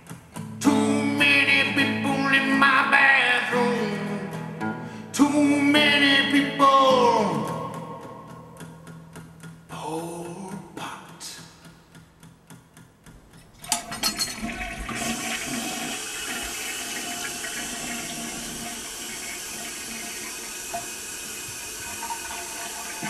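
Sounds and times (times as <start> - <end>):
toilet flushing water rush: 13.6 - 23.0.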